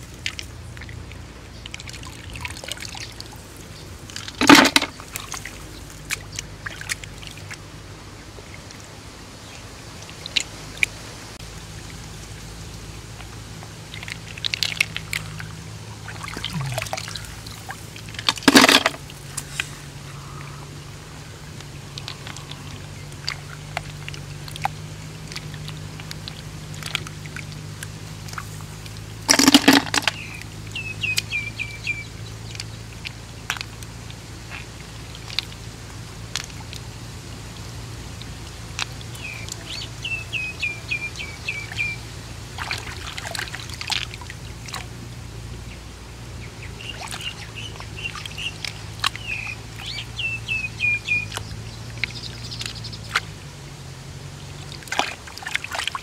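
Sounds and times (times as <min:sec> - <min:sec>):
small wet clicks: 0:00.0 - 0:07.6, 0:10.0 - 0:11.0, 0:11.8 - 0:20.8, 0:21.4 - 0:45.0, 0:46.6 - 0:53.5, 0:54.4 - 0:56.0
steady low hum: 0:00.0 - 0:55.4
muddy water splashing: 0:00.0 - 0:56.0
bird chirping: 0:30.0 - 0:32.7, 0:39.2 - 0:42.0, 0:46.4 - 0:53.2.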